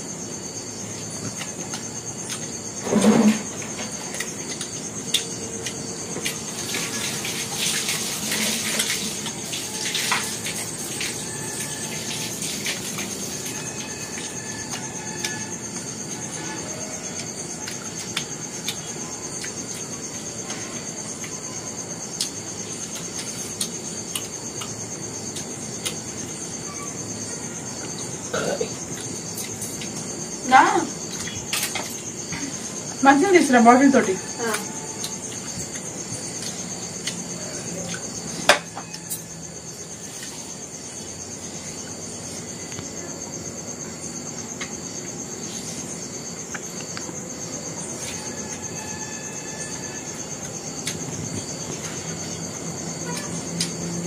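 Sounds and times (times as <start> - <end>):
insect trilling: 0.0 - 54.0.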